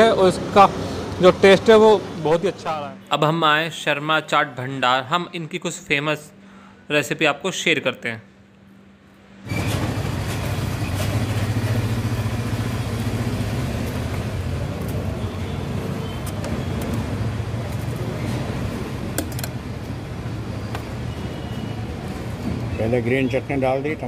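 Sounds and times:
street noise: 0:00.0 - 0:24.0
vehicle engine running: 0:09.5 - 0:15.9.

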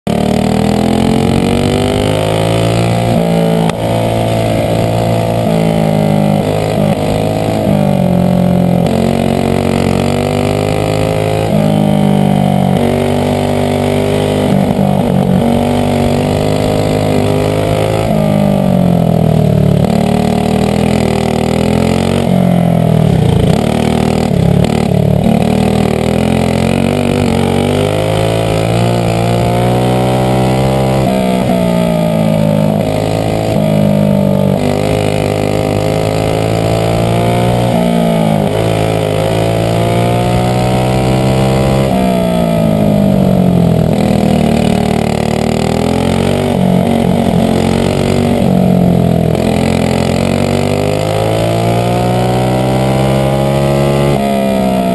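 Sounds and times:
kart engine racing: 0:00.0 - 0:54.9.

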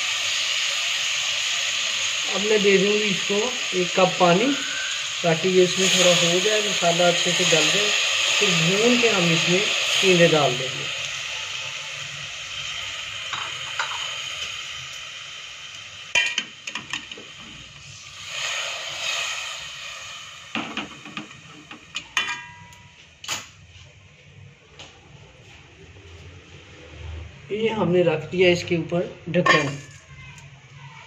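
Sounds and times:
curry sizzling in pot: 0:00.0 - 0:23.0
ladle clinking on metal pot: 0:29.4 - 0:30.0.

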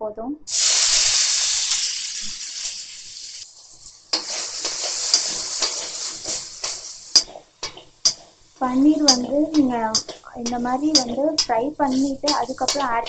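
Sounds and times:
cheese frying in hot fat: 0:00.5 - 0:13.0
spatula clicking against pan: 0:04.1 - 0:08.4, 0:09.0 - 0:13.0.

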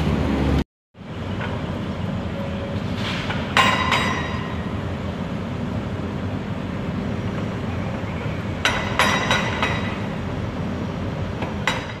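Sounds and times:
sharp metallic clanks: 0:03.2 - 0:04.7, 0:08.6 - 0:10.2.

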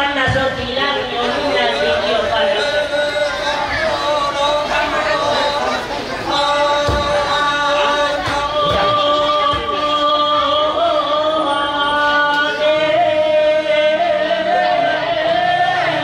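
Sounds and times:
voices singing long notes: 0:00.0 - 0:16.0.

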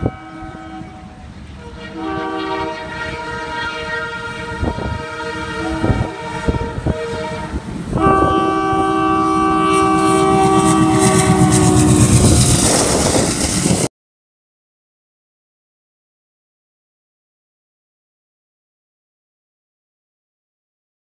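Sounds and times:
train horn: 0:00.0 - 0:13.5.

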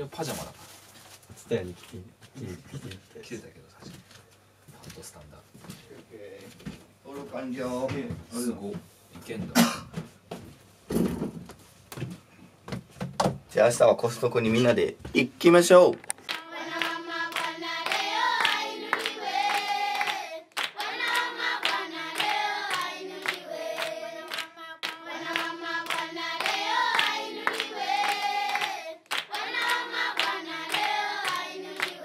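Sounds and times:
sung melody over clap beats: 0:16.3 - 0:32.0.

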